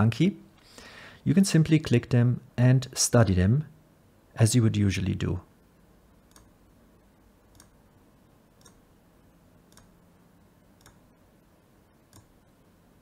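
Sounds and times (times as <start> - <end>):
faint computer mouse clicks: 6.3 - 6.5, 7.5 - 7.8, 8.6 - 8.8, 9.7 - 10.0, 10.8 - 11.0, 12.1 - 12.4.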